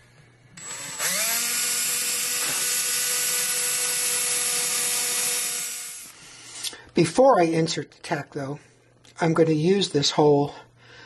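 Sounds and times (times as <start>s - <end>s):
cordless drill whining: 0.6s - 6.2s.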